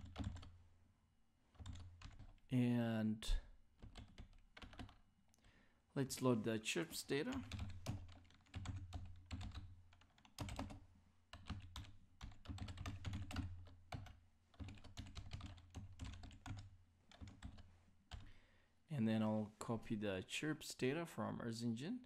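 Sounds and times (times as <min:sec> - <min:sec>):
computer keyboard typing: 0:00.0 - 0:00.6, 0:01.6 - 0:02.4, 0:03.8 - 0:05.0, 0:07.3 - 0:18.3.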